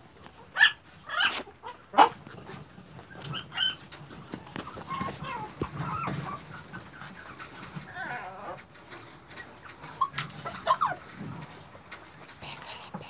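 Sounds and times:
puppies squeaking and whimpering: 0:00.4 - 0:02.1, 0:03.0 - 0:06.5, 0:09.8 - 0:11.0.

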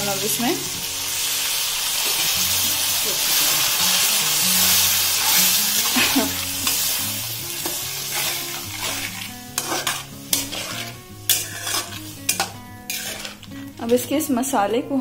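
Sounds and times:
sauce sizzling in oil: 0:00.0 - 0:14.3
spatula scraping and knocking pan: 0:07.6 - 0:14.1.

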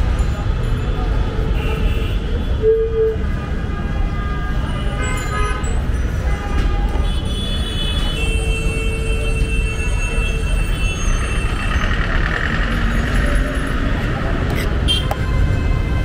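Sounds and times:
street traffic rumbling: 0:00.0 - 0:16.0
vehicle horns tooting: 0:14.8 - 0:16.0.

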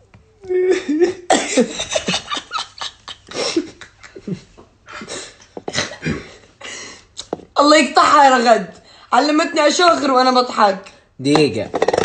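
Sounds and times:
woman laughing: 0:00.6 - 0:04.5
man laughing with snorts: 0:00.7 - 0:06.4.

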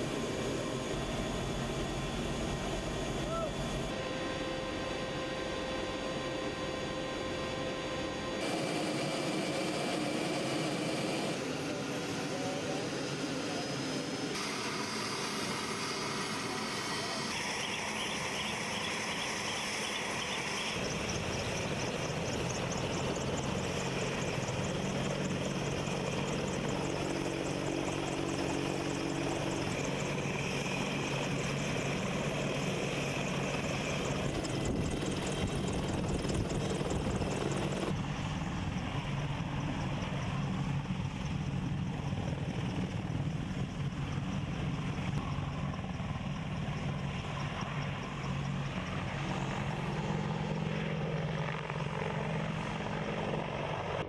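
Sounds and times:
helicopter turbines and rotor: 0:00.0 - 0:54.0.

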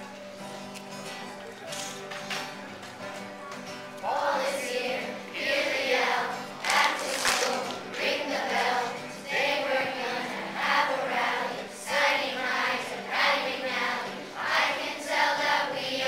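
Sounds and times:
strummed acoustic guitars: 0:00.0 - 0:16.0
children's choir singing: 0:04.0 - 0:16.0.

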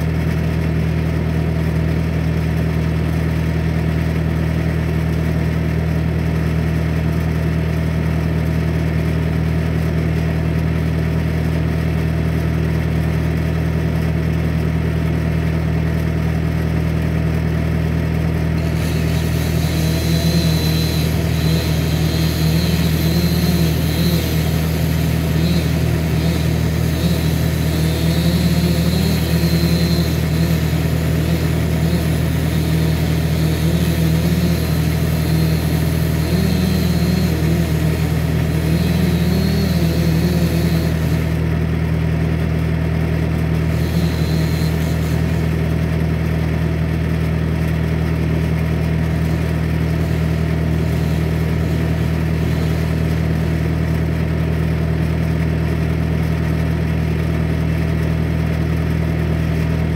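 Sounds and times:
diesel engine idling: 0:18.1 - 0:42.0, 0:43.2 - 0:46.8, 0:49.1 - 0:54.6
wavering engine note: 0:18.6 - 0:41.6, 0:43.6 - 0:45.8, 0:49.9 - 0:54.0.

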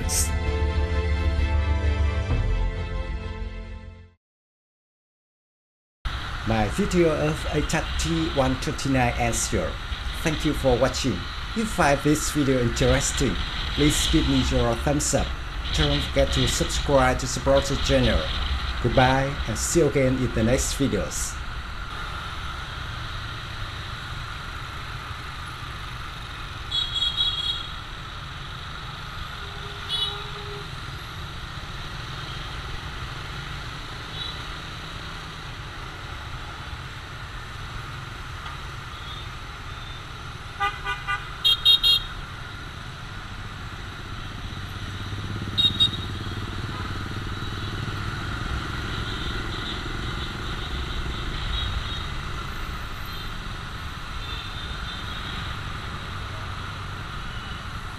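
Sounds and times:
motorbike engine and road rumble: 0:20.9 - 0:57.9
horns beeping: 0:45.4 - 0:46.8.

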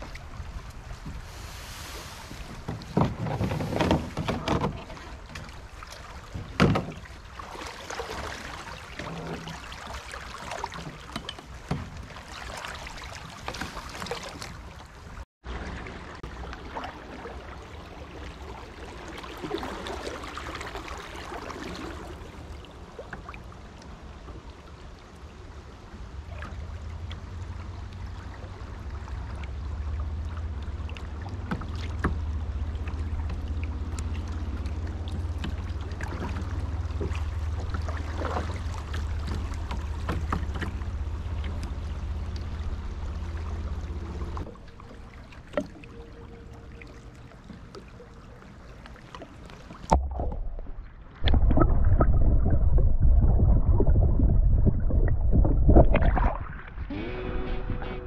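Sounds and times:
water rippling past kayak: 0:00.0 - 0:58.0
water sloshing: 0:00.0 - 0:58.0
low rumble: 0:49.9 - 0:58.0.

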